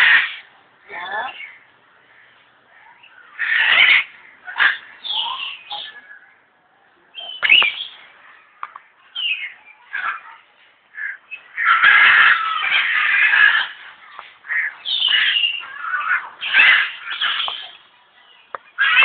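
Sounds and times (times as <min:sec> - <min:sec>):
parrots squawking and whistling: 0:03.0 - 0:06.2, 0:07.2 - 0:08.0, 0:11.0 - 0:13.8, 0:14.5 - 0:17.8, 0:18.7 - 0:19.0.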